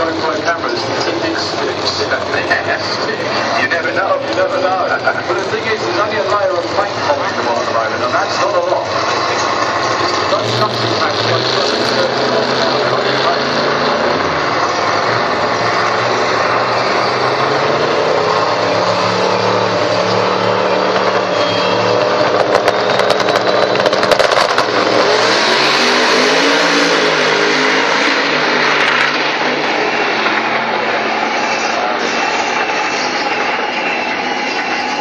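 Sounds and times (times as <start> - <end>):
rapid engine popping: 0.0 - 26.5
drag racing car engines running: 0.0 - 35.0
full-throttle car launch: 0.0 - 35.0.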